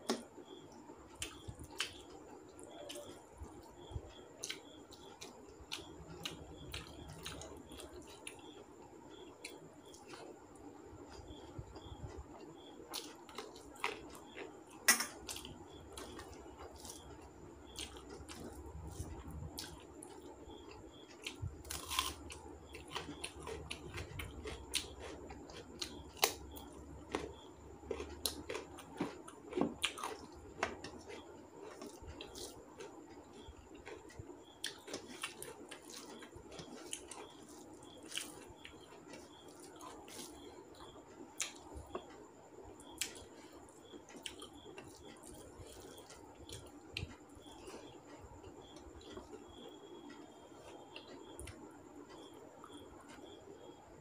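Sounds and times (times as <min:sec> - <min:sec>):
chewing and mouth smacks: 0:20.6 - 0:42.0
carrot crunching: 0:27.1 - 0:32.5.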